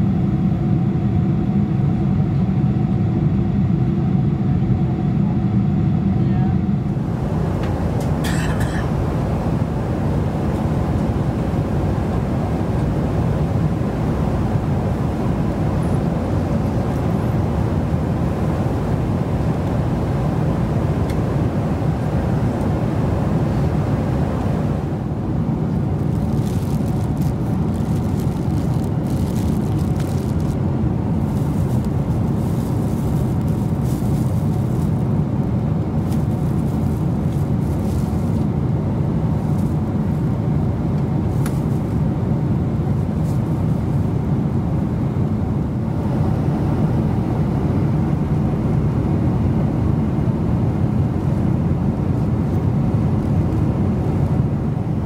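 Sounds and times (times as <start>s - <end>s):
airplane cabin drone: 0.0s - 55.0s
plastic wrapping crinkling: 26.0s - 30.6s, 31.2s - 35.1s, 36.0s - 38.5s.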